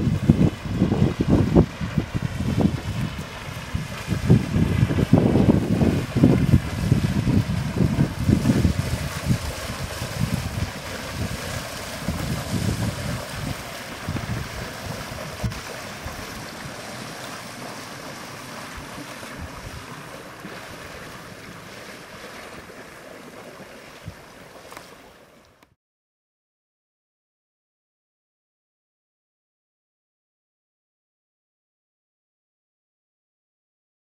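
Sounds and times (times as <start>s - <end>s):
wind buffeting microphone: 0.0s - 21.7s, 24.0s - 24.4s
water rushing at boat bow: 0.0s - 25.8s.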